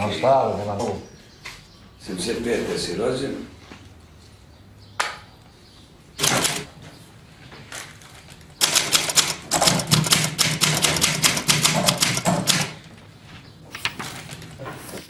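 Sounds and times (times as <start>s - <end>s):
typewriter clack: 6.2s - 6.7s, 8.6s - 12.9s
typewriter keystrokes: 6.2s - 6.7s, 8.6s - 12.9s.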